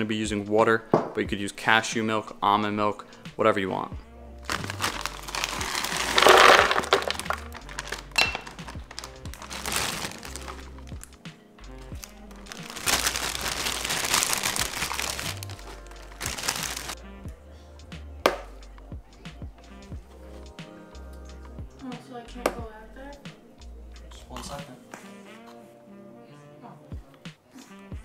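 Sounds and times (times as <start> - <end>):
background music with bass line: 2.6 - 26.1, 27.0 - 28.0
frozen berries clattering into jar: 4.5 - 10.9, 12.4 - 17.0
plastic bag crinkling: 4.5 - 11.1, 12.0 - 17.0.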